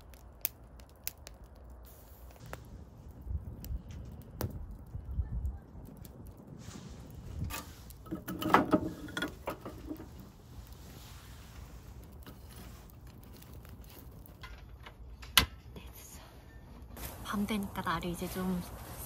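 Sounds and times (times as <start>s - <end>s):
objects knocking and rattling: 7.5s - 10.2s.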